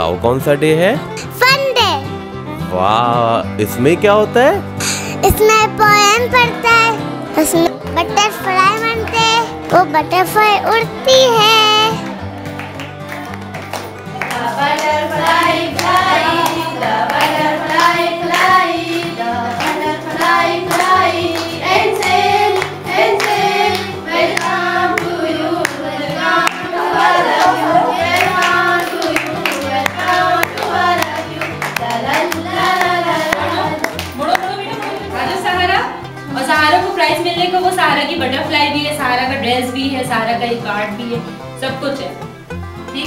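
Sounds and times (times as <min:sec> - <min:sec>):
children singing: 0:14.2 - 0:33.9.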